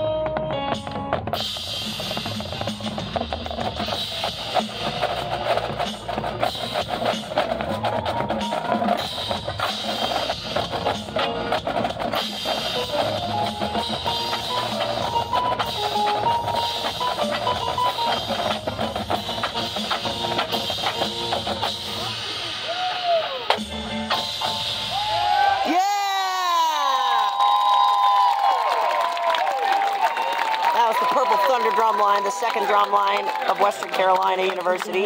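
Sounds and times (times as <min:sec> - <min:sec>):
snare and bass drums: 0:00.3 - 0:25.4.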